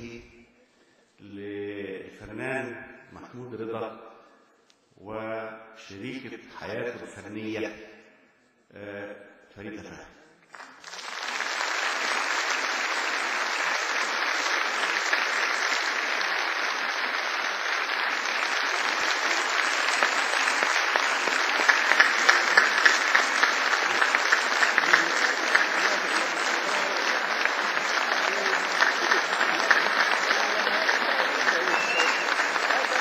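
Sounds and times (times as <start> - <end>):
audience applauding: 10.5 - 33.0.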